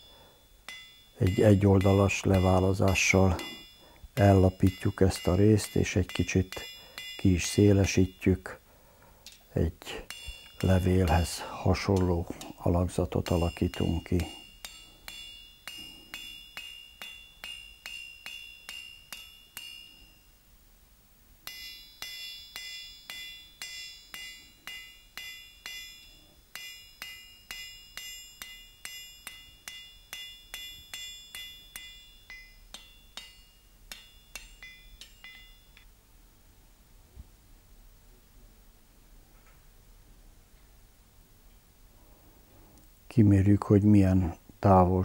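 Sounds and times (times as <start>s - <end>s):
hammer striking iron on anvil: 0.7s - 8.5s, 10.0s - 20.0s, 21.4s - 35.8s.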